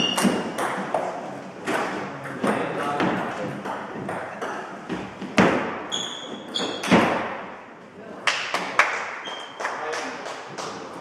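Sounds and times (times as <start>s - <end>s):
shoe squeaks: 0.0s - 0.6s, 5.9s - 7.1s, 9.2s - 9.6s.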